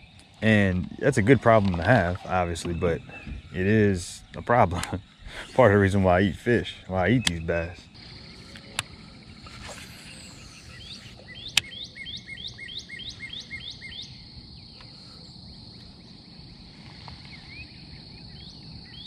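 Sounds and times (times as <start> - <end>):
high-pitched insect drone: 0.0 - 19.0
bird repeating rising note: 6.6 - 14.2.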